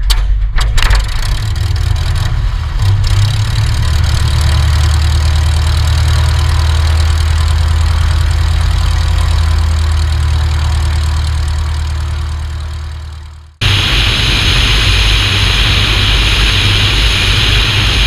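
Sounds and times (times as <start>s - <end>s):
light aircraft engine drone: 0.9s - 18.0s
rush of air: 13.6s - 18.0s.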